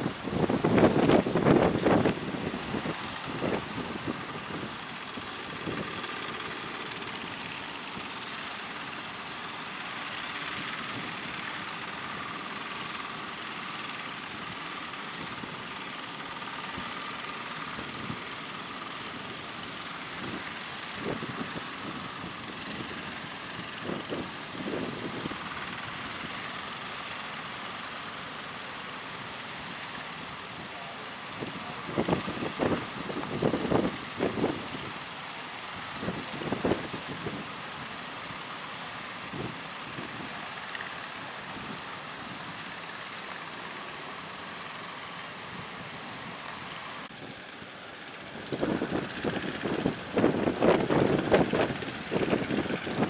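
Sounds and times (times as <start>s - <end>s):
wind buffeting microphone: 0.0s - 8.4s, 16.6s - 26.6s, 29.7s - 38.0s, 39.2s - 42.8s, 48.1s - 53.0s
boat engines whining: 0.0s - 53.0s
wind: 0.0s - 53.0s.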